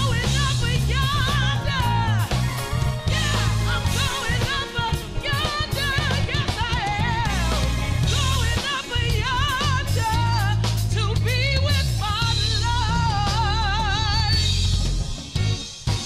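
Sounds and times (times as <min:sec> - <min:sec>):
woman singing gospel: 0:00.0 - 0:14.6
live band playing: 0:00.0 - 0:16.0.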